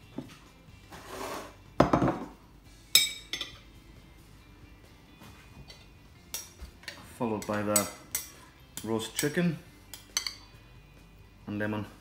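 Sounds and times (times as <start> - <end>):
dish scraping on worktop: 0.9 - 2.3
dull knock of dishes: 1.8 - 2.4
dishes clinking: 3.0 - 3.7.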